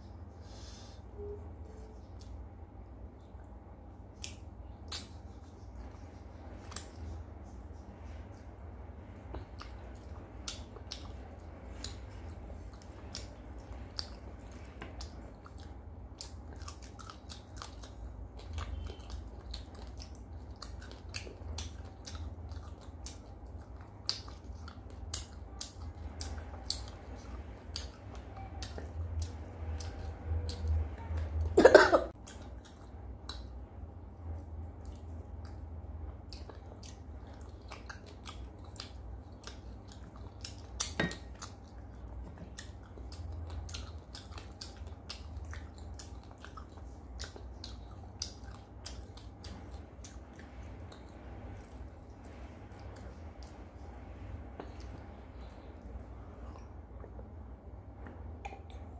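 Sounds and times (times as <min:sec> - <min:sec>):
low steady hum: 0:00.0 - 0:58.9
wet mouth clicks and smacks: 0:04.2 - 0:05.4, 0:58.0 - 0:58.9.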